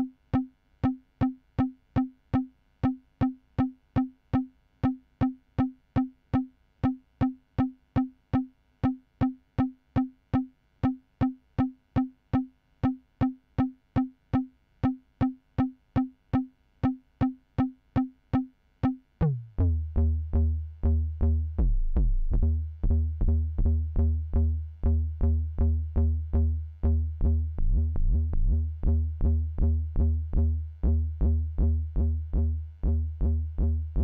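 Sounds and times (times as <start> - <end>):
low pulsing bass: 19.2 - 34.0.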